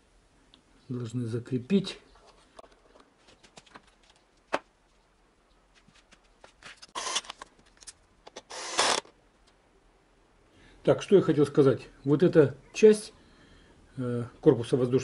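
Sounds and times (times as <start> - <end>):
cordless screwdriver running: 7.0 - 7.3, 8.4 - 9.1.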